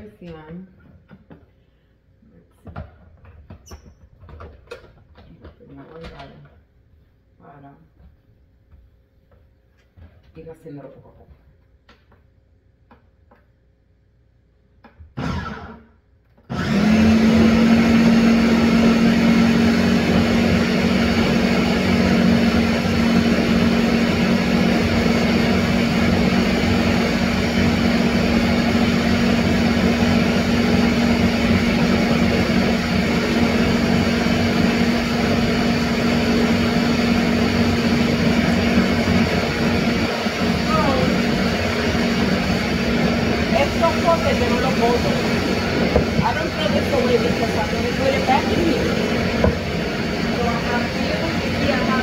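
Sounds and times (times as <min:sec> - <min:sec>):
blender motor running: 0:15.2 - 0:52.0.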